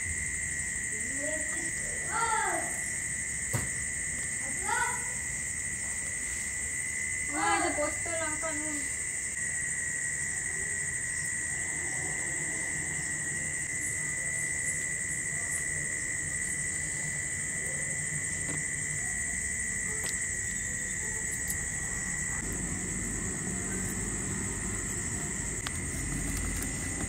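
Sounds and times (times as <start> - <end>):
insects trilling: 0.0 - 27.0
low background hum: 15.4 - 27.0.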